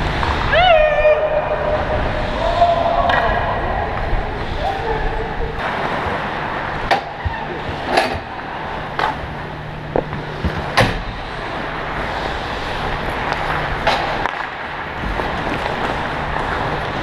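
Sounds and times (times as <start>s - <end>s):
skates gliding on ice: 0.0s - 17.0s
blades and sticks scraping ice: 11.2s - 17.0s.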